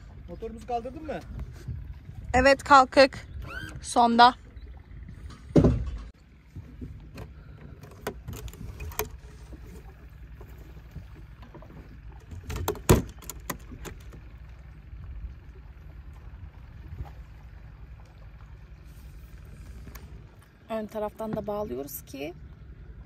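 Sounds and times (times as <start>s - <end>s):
steady low rumble: 0.0s - 23.0s
heavy thump: 5.5s - 6.1s.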